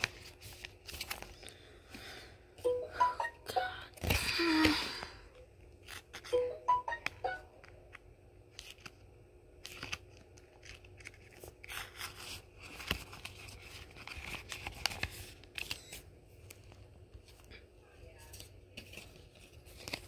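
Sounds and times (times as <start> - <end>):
plastic sheet crinkling and rustling: 0.0 - 1.7, 9.6 - 20.0.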